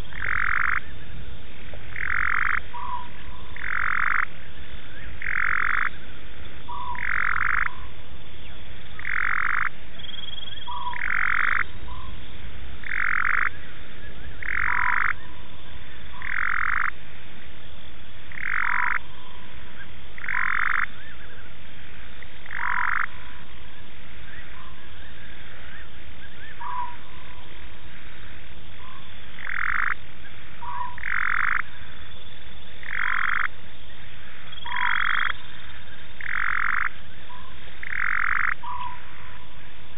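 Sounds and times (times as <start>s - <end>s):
frog calling: 0.0s - 17.0s, 18.3s - 39.9s.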